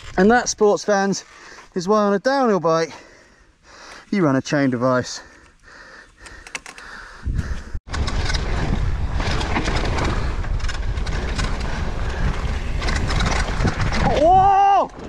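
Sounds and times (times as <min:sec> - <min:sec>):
bike tyre noise: 0:05.3 - 0:15.0
wind buffeting microphone: 0:07.1 - 0:15.0
bike rattling over ground: 0:07.9 - 0:15.0.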